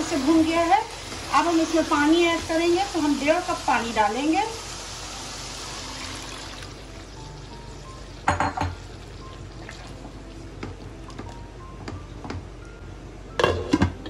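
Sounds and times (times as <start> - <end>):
food sizzling in oil: 0.0 - 10.8
spoon knocking against pot: 8.3 - 8.8.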